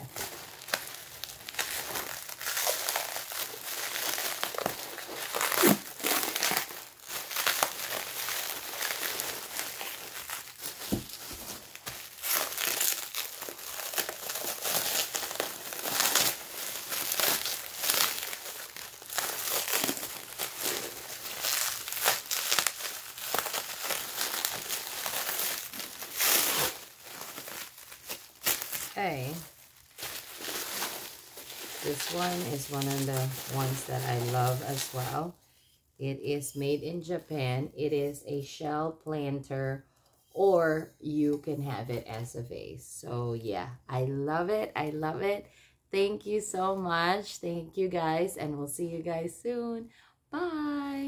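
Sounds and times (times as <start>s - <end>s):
packing wrap crinkling: 0.0s - 35.3s.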